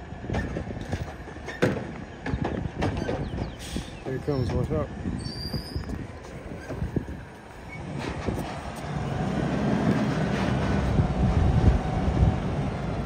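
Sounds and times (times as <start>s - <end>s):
metal knocks: 0.3s - 3.5s
diesel engine revving: 3.4s - 13.0s.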